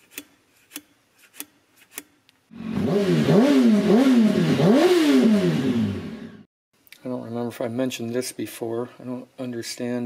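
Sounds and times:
engine revving in blips: 2.5s - 6.5s.

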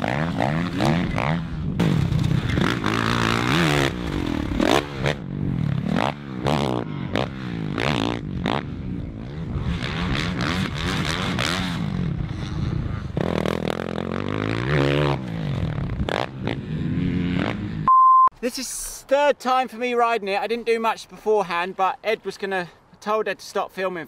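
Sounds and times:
motorbike engine revving: 0.0s - 17.9s.

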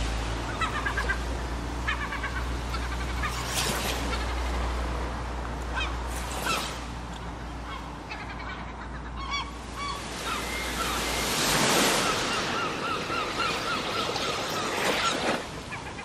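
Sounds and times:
surf: 0.0s - 16.0s
birds calling: 0.3s - 5.0s, 5.6s - 16.0s
wave washing in: 9.6s - 16.0s.

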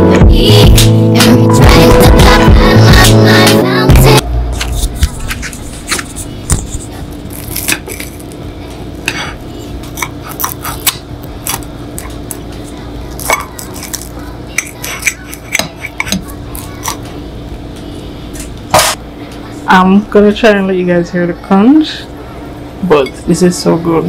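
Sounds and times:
crust crunching under knife: 4.8s - 8.4s, 9.0s - 12.5s, 13.2s - 17.0s.

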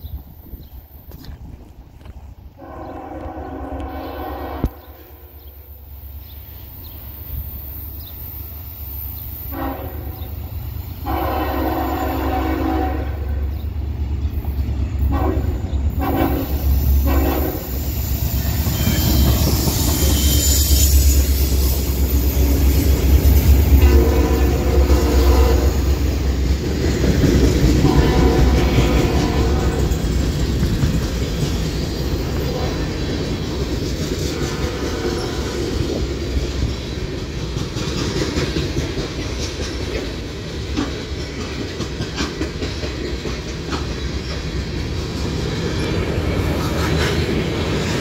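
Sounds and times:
locomotive air horn blasts: 2.6s - 5.3s, 9.5s - 10.3s, 11.0s - 13.4s, 15.1s - 17.8s, 23.7s - 25.9s, 27.8s - 29.8s, 34.3s - 35.6s.

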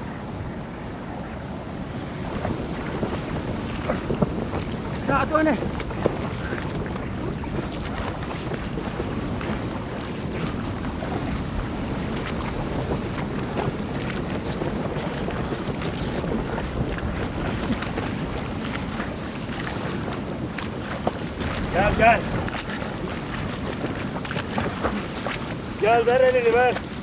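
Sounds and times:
wind rushing: 1.8s - 26.0s
small water splashes: 1.8s - 27.0s.

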